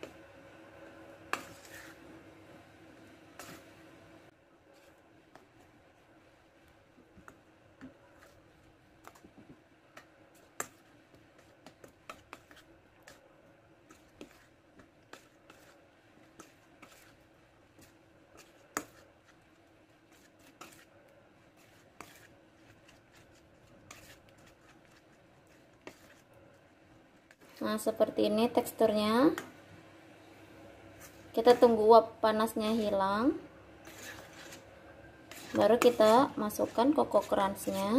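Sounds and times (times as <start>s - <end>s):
faint steady hum: 0.0s - 37.9s
metal spoon scraping steel bowl: 1.3s - 2.0s, 33.8s - 37.9s.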